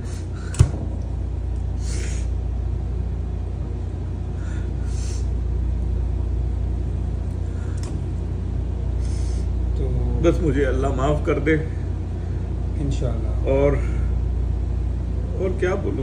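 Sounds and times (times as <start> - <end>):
steady low hum: 0.0 - 16.0
sniffs: 1.8 - 2.3, 4.4 - 5.3, 9.0 - 9.5.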